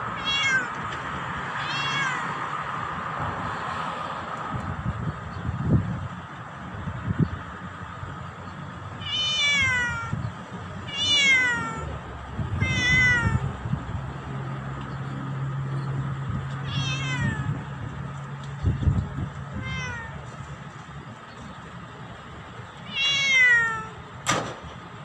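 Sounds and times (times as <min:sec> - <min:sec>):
cat meowing: 0:00.1 - 0:00.8, 0:01.6 - 0:02.4, 0:09.0 - 0:10.2, 0:10.8 - 0:13.5, 0:16.6 - 0:17.7, 0:19.5 - 0:20.3, 0:22.8 - 0:24.0.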